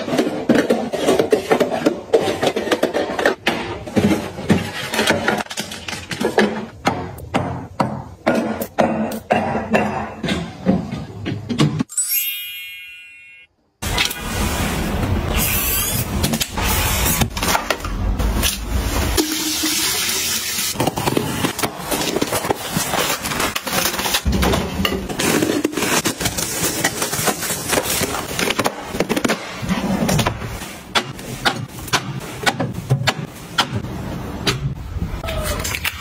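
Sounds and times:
plastic packaging rustling: 20.8s - 29.2s.

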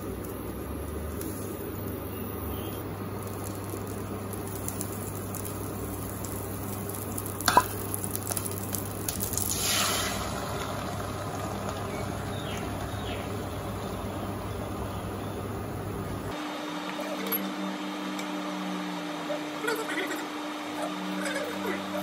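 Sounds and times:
egg sizzling: 0.0s - 16.4s
butter sizzling in a pan: 3.0s - 15.2s.

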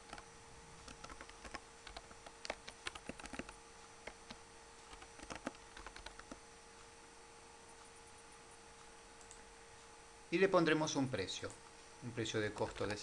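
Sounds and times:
typing on computer keyboard: 0.0s - 0.2s, 0.8s - 6.4s, 12.5s - 13.0s.

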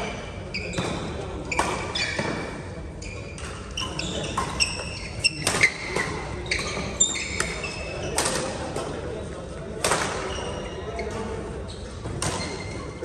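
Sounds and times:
shoes squeaking on floor: 0.0s - 8.4s, 10.2s - 13.0s
racket hitting shuttlecock: 0.8s - 2.6s, 4.3s - 8.6s, 9.8s - 10.3s.

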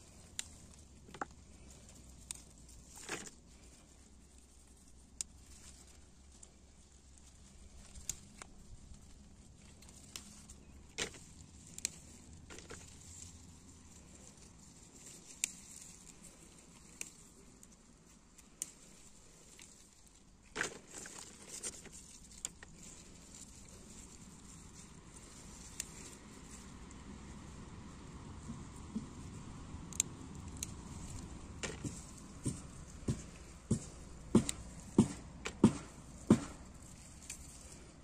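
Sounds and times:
pepper stems snapping: 7.6s - 8.5s, 9.7s - 13.3s, 14.0s - 27.0s, 28.8s - 37.8s.

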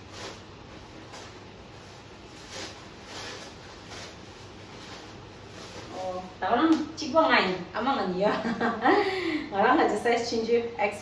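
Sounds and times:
plastic packaging rustling: 0.0s - 6.4s
clothing rustling: 0.0s - 6.6s.

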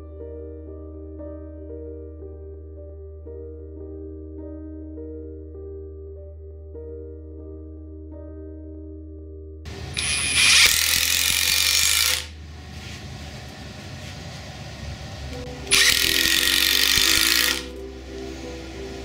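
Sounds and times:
impact driver driving screws: 10.0s - 12.3s, 15.7s - 17.7s.

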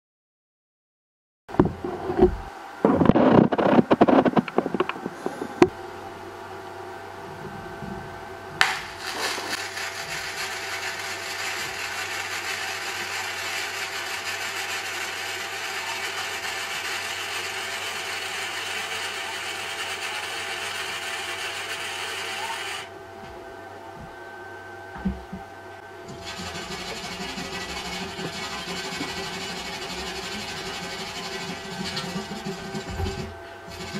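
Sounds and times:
welding arc striking crack: 8.6s - 12.6s
welding arc crackling sizzle: 8.6s - 22.9s.

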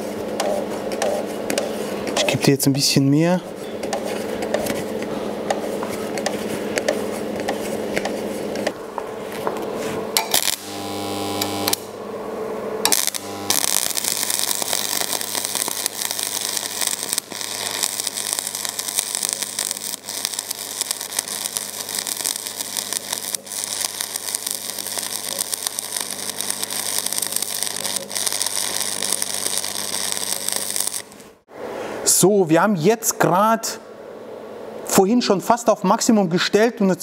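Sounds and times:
low mains hum: 0.0s - 37.0s
welding arc crackling and sizzling: 10.2s - 12.0s, 12.8s - 31.5s.

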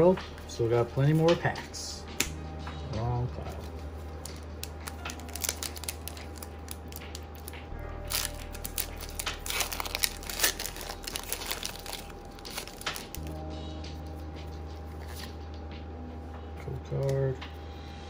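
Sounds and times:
foil wrapper crinkling: 3.5s - 13.3s.

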